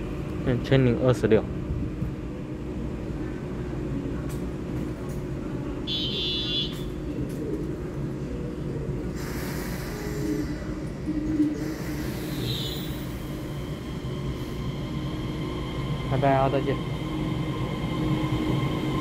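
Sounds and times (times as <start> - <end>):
electric train humming: 0.0 - 19.0
train air hiss: 9.1 - 17.4.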